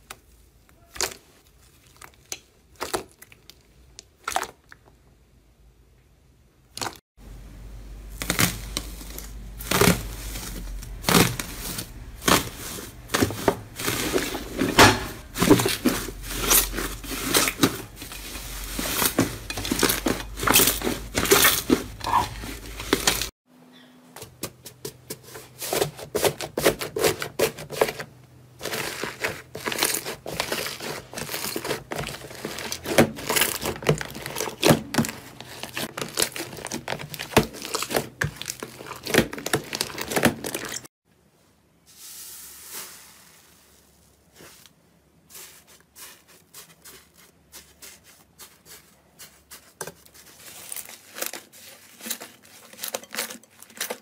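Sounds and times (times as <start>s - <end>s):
foil crinkling and tearing: 8.1s - 23.3s, 28.6s - 40.9s, 45.3s - 54.0s.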